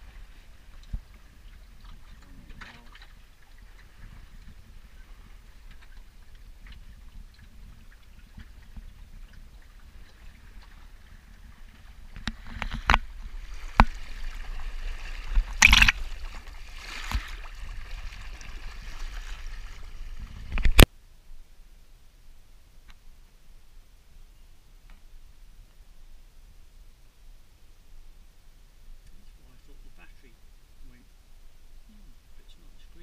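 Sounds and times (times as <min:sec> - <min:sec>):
water rushing along wooden hull: 0:00.0 - 0:20.9
low steady rumble: 0:00.0 - 0:33.0
water slapping against bow: 0:00.6 - 0:20.9.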